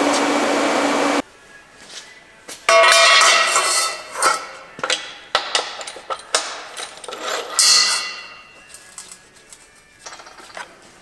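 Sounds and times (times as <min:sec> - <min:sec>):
metal knocks and clinks: 0:02.7 - 0:09.2, 0:10.0 - 0:10.7
steel frame clanging: 0:02.7 - 0:09.2.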